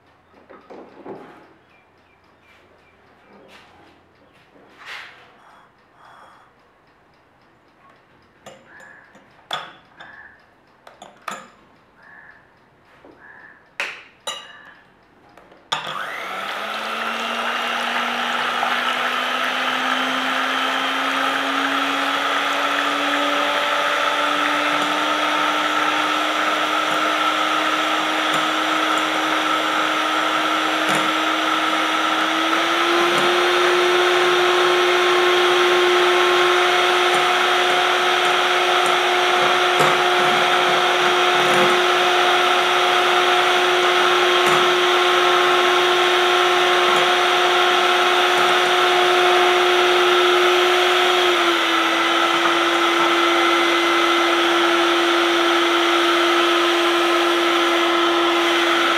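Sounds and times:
electric hand mixer whisking: 15.8s - 58.9s.

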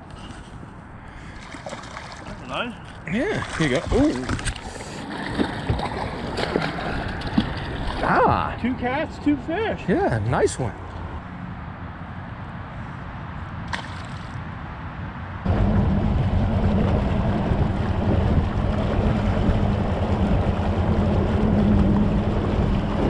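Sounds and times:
wind on the microphone: 15.4s - 23.0s
boat motor running: 15.5s - 23.0s.

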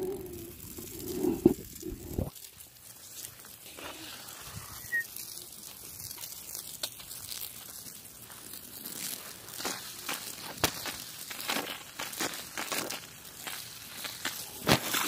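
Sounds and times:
phone rubbing against clothing: 0.8s - 2.3s, 3.7s - 5.1s.

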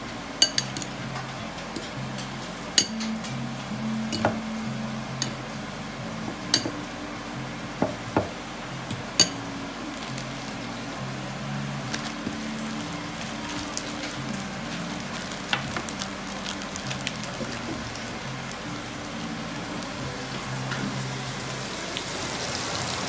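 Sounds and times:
background music with low notes: 0.0s - 23.0s
metal spoon clinking ceramic bowl: 0.4s - 0.9s, 2.8s - 3.1s, 6.5s - 6.8s, 9.2s - 9.4s.

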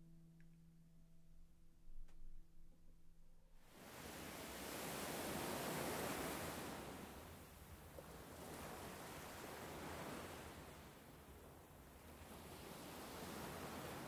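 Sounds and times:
surf washing up beach: 3.8s - 11.2s, 12.1s - 14.0s.

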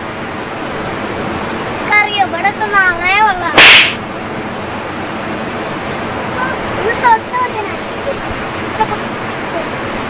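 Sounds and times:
brief loud hiss: 3.6s - 4.0s.

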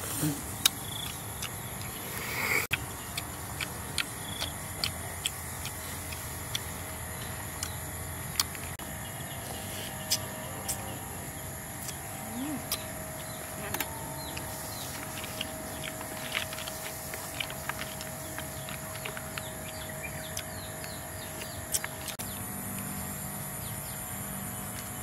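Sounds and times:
insects buzzing: 0.0s - 25.0s
birds chirping: 0.5s - 25.0s.

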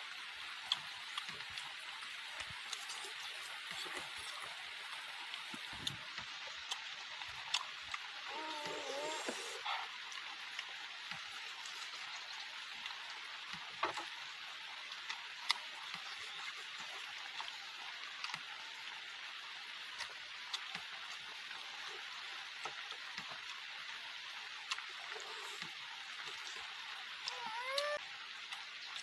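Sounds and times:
person chewing with mouth clicks: 6.6s - 9.8s.

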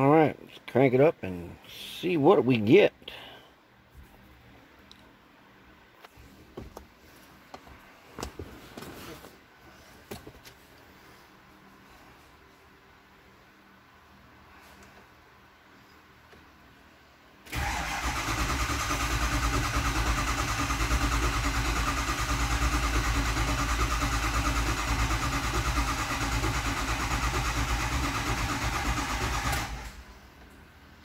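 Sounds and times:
diesel engine cranking on starter: 17.5s - 30.1s.

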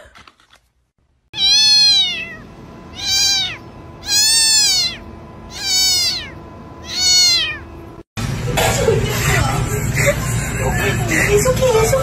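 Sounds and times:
cat meowing: 1.4s - 7.7s.

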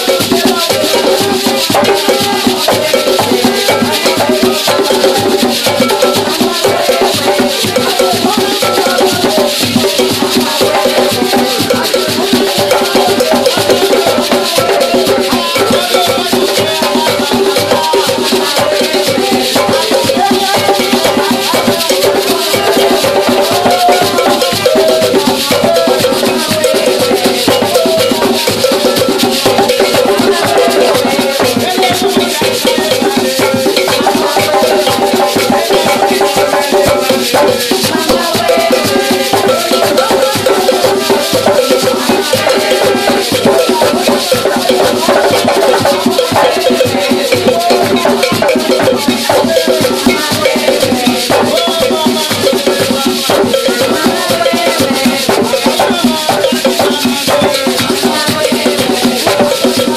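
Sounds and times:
hand drums playing: 0.0s - 59.9s
shakers rattling: 0.0s - 59.9s.

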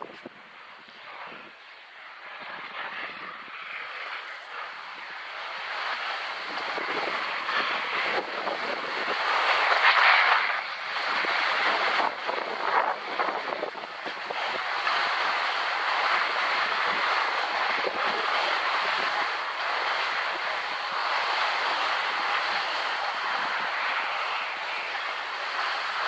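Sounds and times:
skis scraping over snow: 0.0s - 26.0s.

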